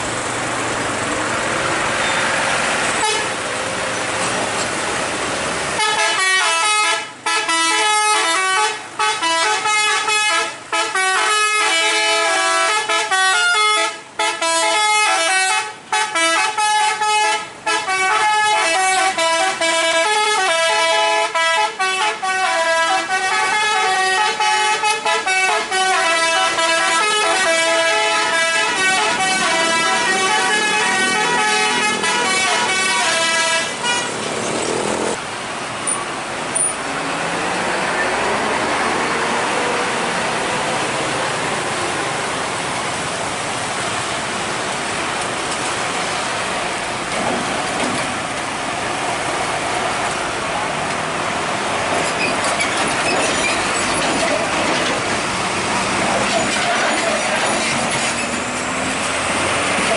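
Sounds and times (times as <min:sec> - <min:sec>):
road traffic: 0:00.0 - 0:59.9
truck engine: 0:00.0 - 0:59.9
musical truck horn playing a tune: 0:05.8 - 0:34.2.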